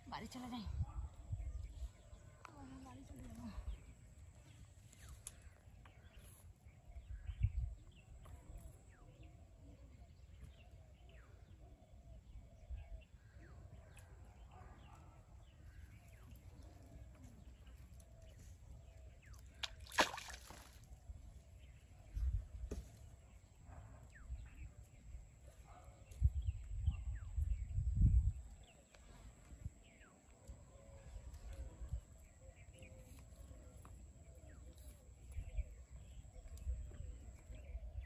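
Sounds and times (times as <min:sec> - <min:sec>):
splash in water: 0:19.5 - 0:20.9.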